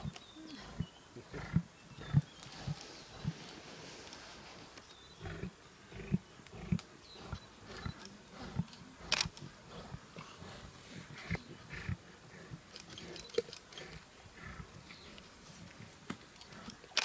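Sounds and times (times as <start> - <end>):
lions growling: 0.0 - 4.2, 5.2 - 17.0
lion snarl: 5.2 - 14.9.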